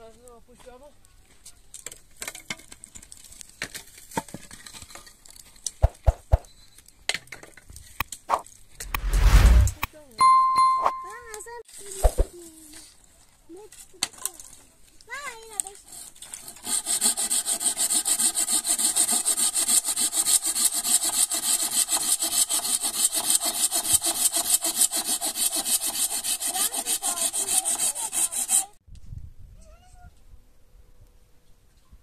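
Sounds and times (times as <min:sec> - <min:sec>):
hand saw rasping through wood: 0:15.8 - 0:28.8.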